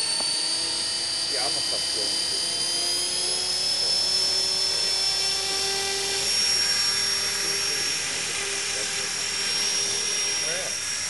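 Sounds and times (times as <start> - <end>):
electric helicopter motor whine: 0.0 - 11.0.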